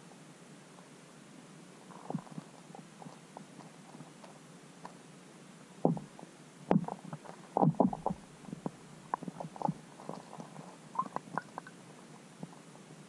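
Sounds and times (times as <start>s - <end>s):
steady underwater hiss: 0.0s - 13.0s
underwater knocks and clicks: 5.8s - 6.1s, 6.7s - 10.4s, 11.0s - 11.8s.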